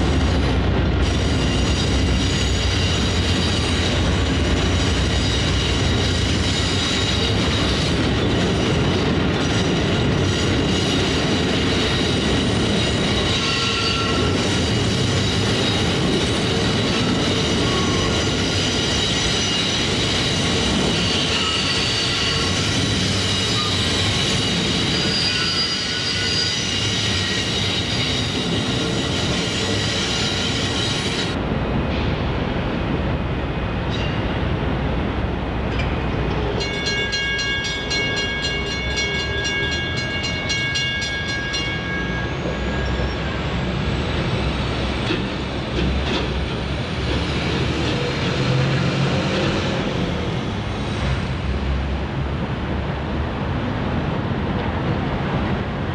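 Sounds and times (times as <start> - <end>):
train wheels rumbling: 0.0 - 55.9
high wheel squeal: 1.0 - 8.9, 9.5 - 31.4, 41.6 - 44.6.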